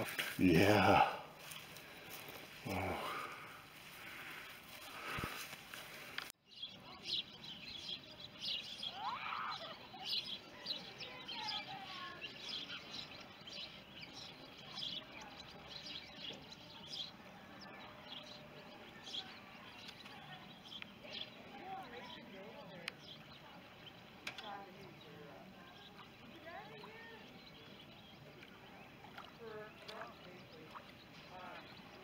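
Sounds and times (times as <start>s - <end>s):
songbirds chirping: 0.0s - 32.0s.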